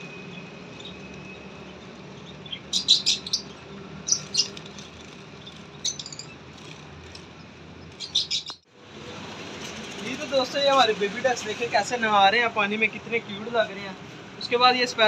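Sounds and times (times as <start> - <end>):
young sparrow chirping: 0.8 - 4.6, 5.4 - 6.5, 7.9 - 8.7.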